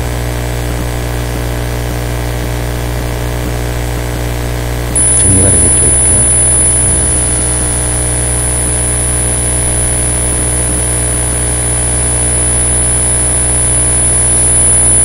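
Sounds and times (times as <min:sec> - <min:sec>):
electrical mains hum and hiss: 0:05.0 - 0:15.0
high-pitched whine: 0:05.0 - 0:15.0.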